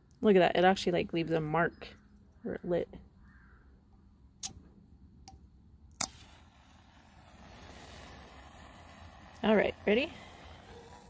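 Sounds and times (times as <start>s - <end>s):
match burning hiss: 6.0s - 11.0s
match strike scratch: 6.0s - 11.0s.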